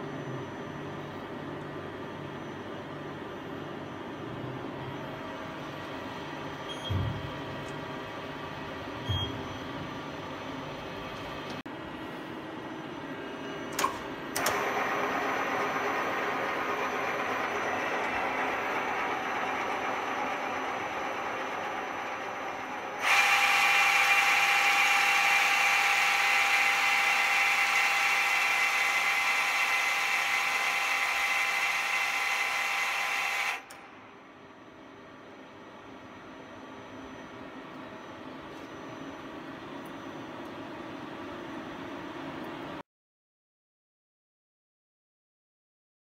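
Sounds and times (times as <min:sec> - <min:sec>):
tool spinning high whine: 0:14.4 - 0:33.8
lathe machine hum: 0:14.4 - 0:34.3.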